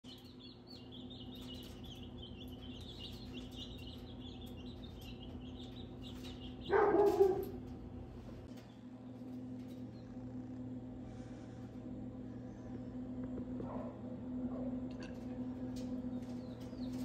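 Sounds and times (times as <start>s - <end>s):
chicks peeping: 0.0s - 7.8s, 15.1s - 17.0s
steady low hum: 0.0s - 17.0s.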